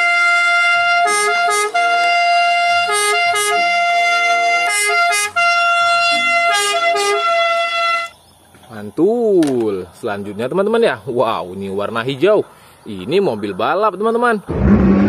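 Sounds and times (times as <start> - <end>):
two-tone ambulance siren: 0.0 - 8.1.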